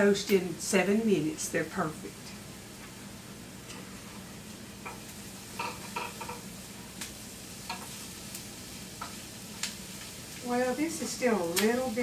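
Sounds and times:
vegetables sizzling in skillet: 0:00.0 - 0:12.0
utensil scraping and tapping pan: 0:05.6 - 0:06.5.

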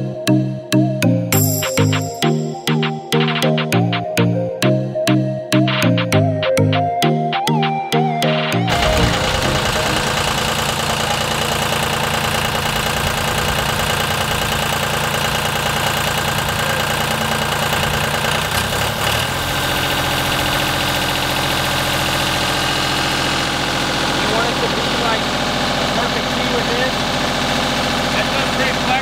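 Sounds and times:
vibratory plow engine running: 0:08.5 - 0:29.0.

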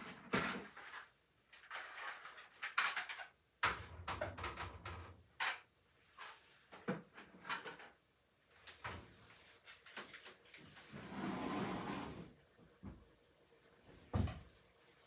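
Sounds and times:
cupboard doors and drawers opening: 0:10.9 - 0:12.3.

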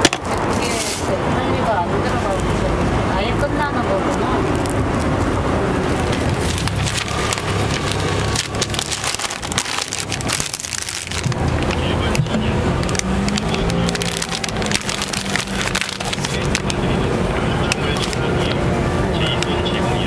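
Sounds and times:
paper wrapper crinkling: 0:04.5 - 0:19.5.

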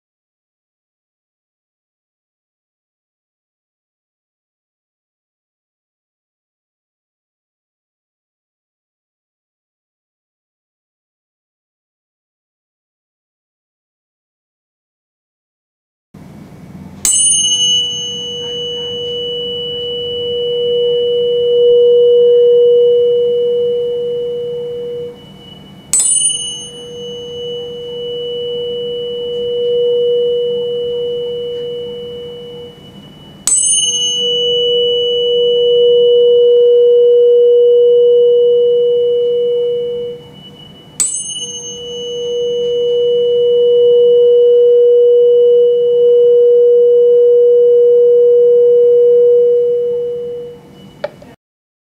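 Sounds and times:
pure tuning fork tone: 0:16.2 - 0:51.4
tuning fork strike click: 0:17.0 - 0:51.4.

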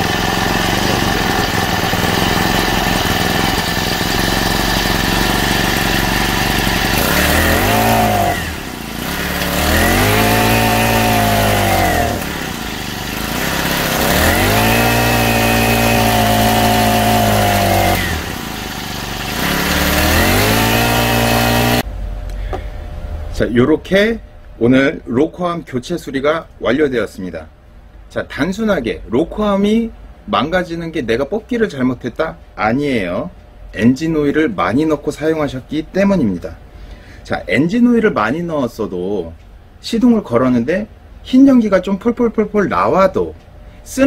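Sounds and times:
brush cutter engine revving: 0:00.0 - 0:21.9.

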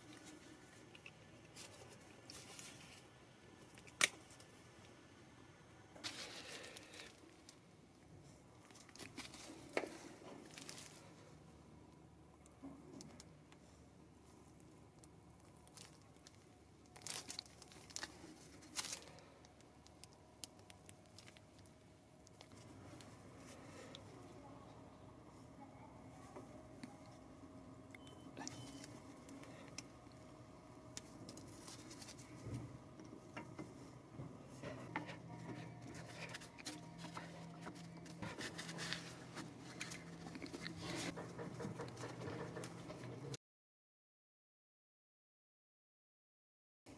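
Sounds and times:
faint low hum: 0:00.0 - 0:43.4
plastic glove crinkling: 0:08.6 - 0:11.2, 0:14.5 - 0:21.7.

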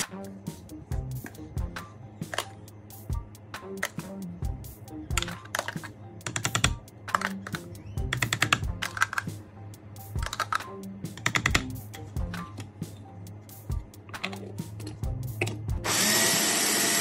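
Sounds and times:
clicky rhythmic percussion: 0:00.0 - 0:15.9
steady bass: 0:00.1 - 0:02.0, 0:04.0 - 0:05.4, 0:10.9 - 0:12.6, 0:14.6 - 0:15.9.

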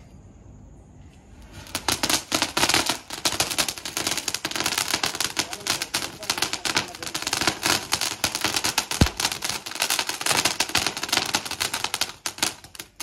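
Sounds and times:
firecracker crackling pops: 0:01.4 - 0:13.0
loud firecracker bang: 0:08.7 - 0:11.5.

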